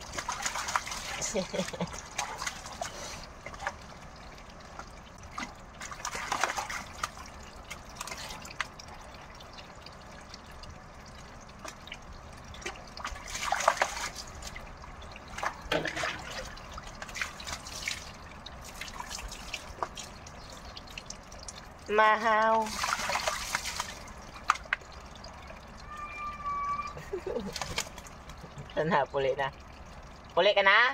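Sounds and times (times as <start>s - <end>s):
water trickling into metal basin: 0.0s - 30.9s
bird splashing in water: 5.4s - 8.8s, 12.6s - 14.6s, 22.6s - 24.9s, 27.4s - 28.5s
water poured from dipper: 12.6s - 14.6s, 22.6s - 24.8s.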